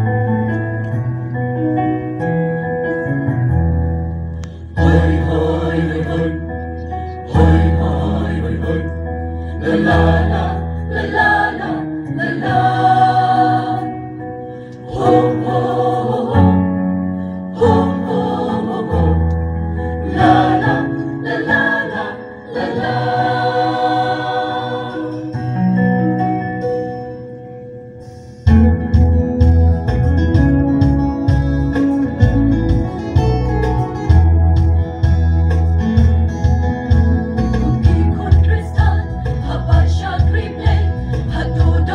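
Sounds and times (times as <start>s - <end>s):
mixed choir singing: 4.8s - 14.2s, 14.8s - 16.8s, 17.5s - 25.6s, 37.8s - 41.9s.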